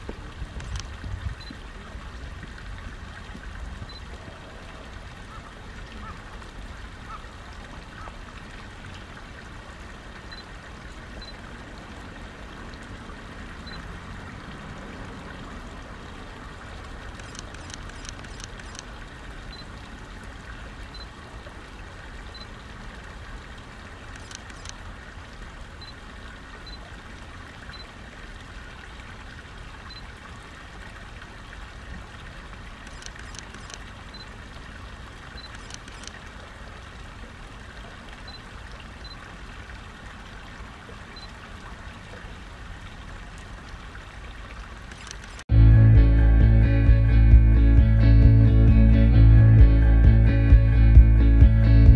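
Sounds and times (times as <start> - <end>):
faint clicks: 0.0 - 1.6, 17.2 - 18.9, 24.1 - 24.8, 32.8 - 33.9, 35.4 - 36.2, 44.9 - 45.4
stream water trickling: 0.0 - 45.5.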